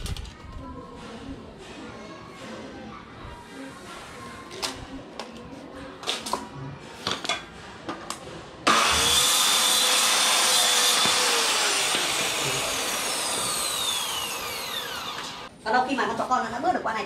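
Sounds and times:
circular saw cutting wood: 8.7 - 15.5.

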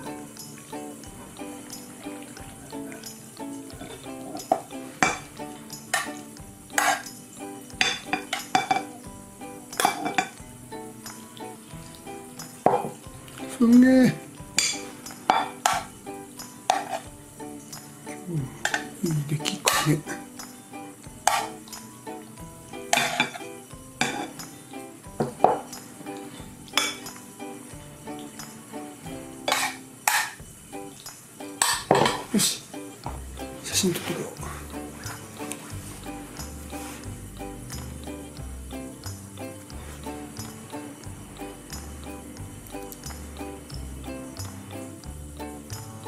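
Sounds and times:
rustling clinking noises: 0.0 - 9.0
utensils clinking on dish: 0.0 - 10.5, 12.2 - 20.6, 21.2 - 22.2, 22.8 - 28.6, 29.4 - 32.8
soft background music: 0.0 - 46.0.

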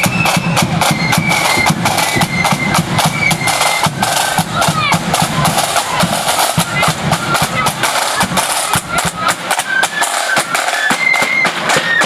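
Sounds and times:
bass drum beat: 0.0 - 9.5
flute melody: 0.0 - 12.0
snare drum rolls: 0.0 - 12.0.

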